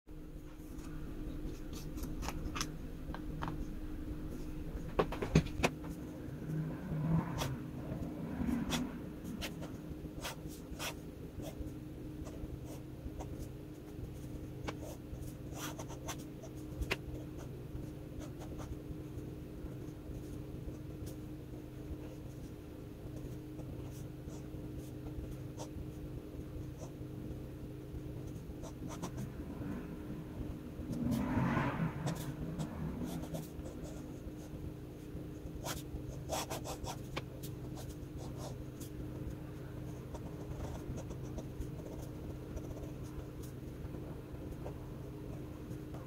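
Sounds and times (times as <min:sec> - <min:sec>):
faint steady hum: 0:00.1 - 0:46.0
pen scratching on paper: 0:07.3 - 0:11.6, 0:12.2 - 0:18.8, 0:28.2 - 0:29.3, 0:32.0 - 0:34.6, 0:35.4 - 0:46.0.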